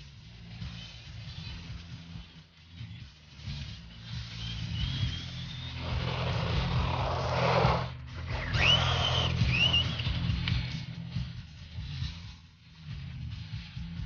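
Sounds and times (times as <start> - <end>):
electric motor whining: 4.4 - 10.5
tyres rushing on asphalt: 4.8 - 10.3.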